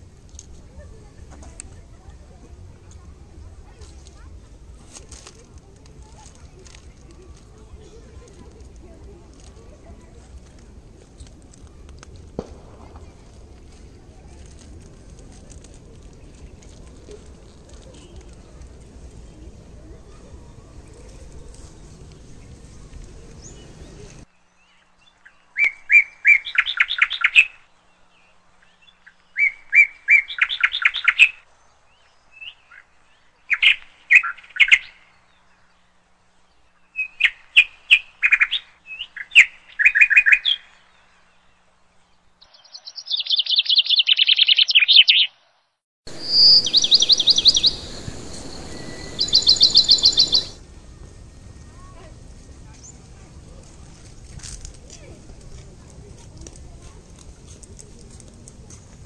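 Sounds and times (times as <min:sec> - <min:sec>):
bird chirping: 0:42.4 - 0:45.4, 0:46.1 - 0:50.6
steady background hiss: 0:46.1 - 0:53.5.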